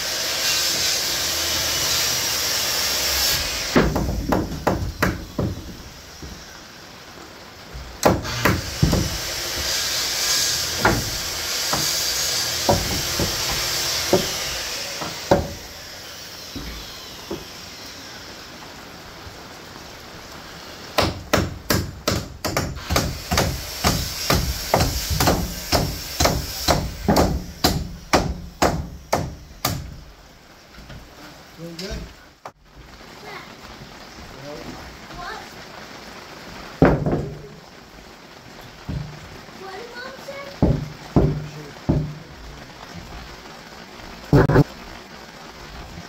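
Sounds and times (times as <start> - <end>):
steady hiss: 0.0 - 46.0
hammer blows on wood: 21.0 - 30.0.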